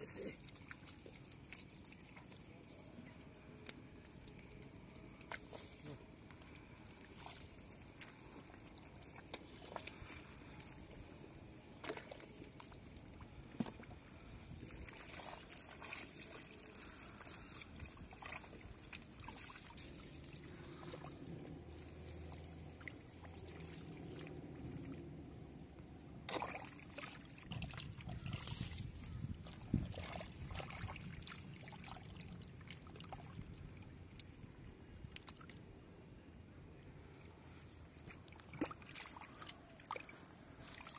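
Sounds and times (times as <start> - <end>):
water trickling: 0.0 - 5.4, 6.2 - 25.2
small splashes: 0.0 - 25.1, 26.2 - 35.6, 37.2 - 40.9
hands sloshing in water: 0.2 - 2.7, 5.1 - 25.0, 26.2 - 34.4, 37.9 - 40.9
stems rustling: 1.0 - 11.3, 12.2 - 22.8, 39.2 - 40.9.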